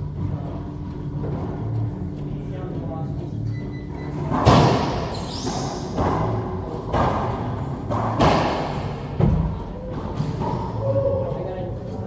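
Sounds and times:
racquetball hits echoing: 4.3s - 10.8s.

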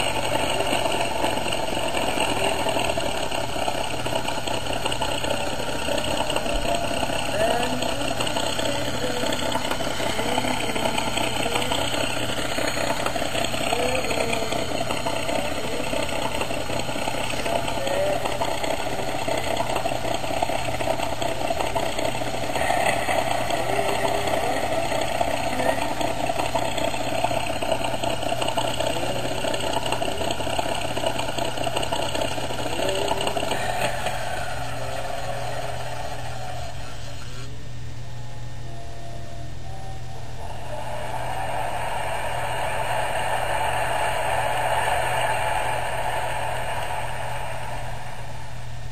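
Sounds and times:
engine idling drone: 0.0s - 48.9s
faint voices: 4.8s - 37.6s.

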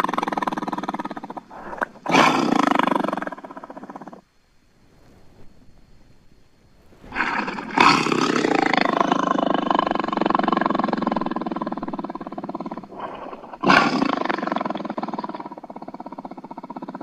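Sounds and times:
big cat roaring: 0.0s - 4.2s, 7.1s - 17.0s.

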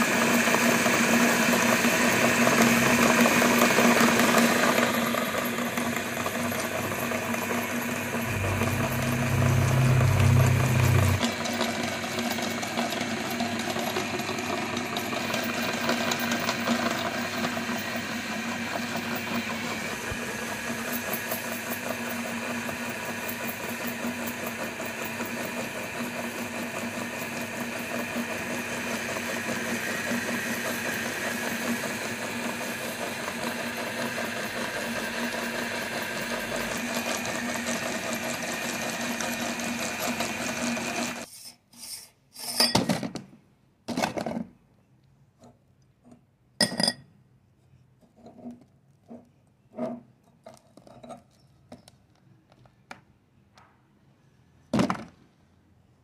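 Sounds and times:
meat grinder motor humming: 0.0s - 41.3s.

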